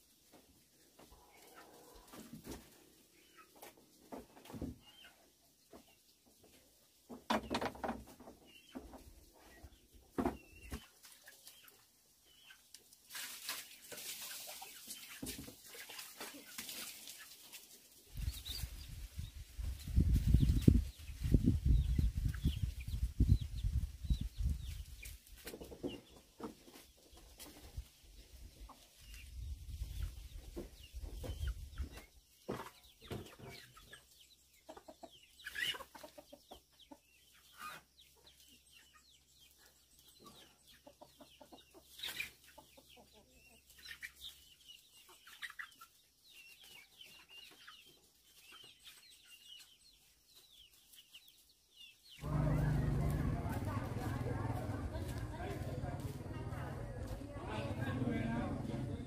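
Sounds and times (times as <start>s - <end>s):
chickens clucking: 0.0s - 59.0s
low rumbling: 52.2s - 59.0s.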